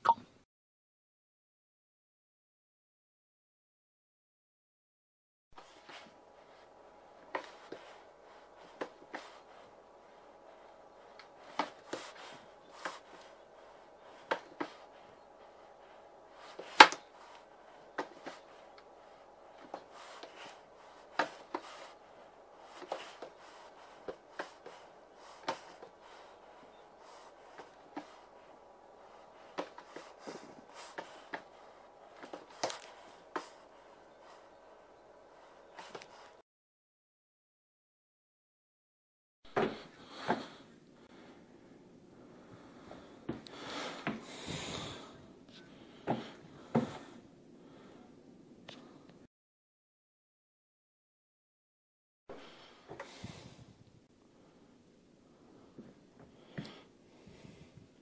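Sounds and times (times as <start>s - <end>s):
faint steady hum: 5.6s - 36.4s, 39.5s - 49.3s, 52.3s - 58.0s.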